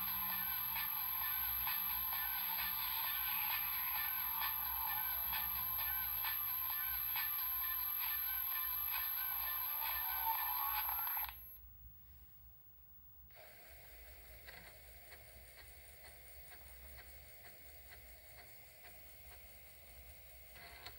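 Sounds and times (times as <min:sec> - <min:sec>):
computer music playback: 0:00.0 - 0:11.4.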